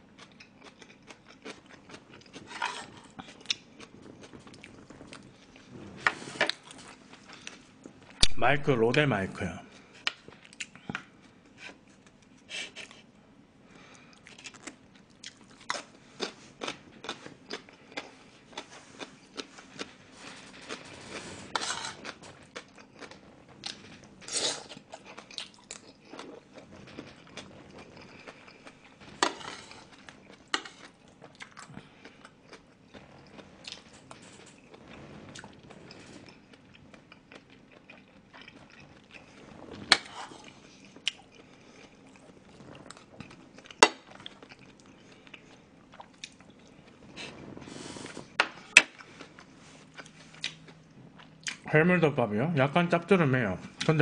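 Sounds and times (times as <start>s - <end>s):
wet chewing and mouth smacks: 24.7s - 33.9s.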